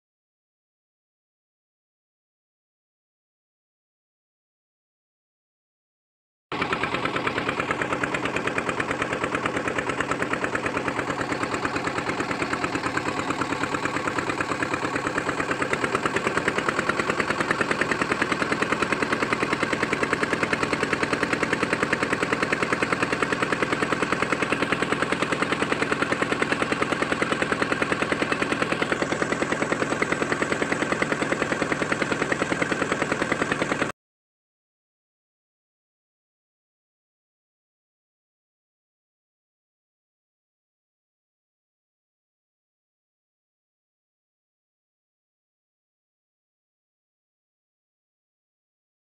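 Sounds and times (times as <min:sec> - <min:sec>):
boat engine chugging: 0:06.5 - 0:33.9.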